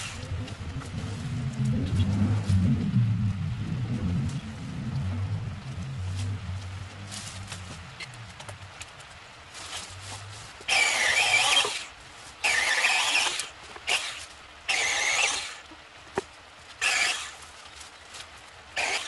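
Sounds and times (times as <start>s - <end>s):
mini chainsaw cutting branches: 10.7s - 15.6s, 16.8s - 17.4s, 18.8s - 19.0s.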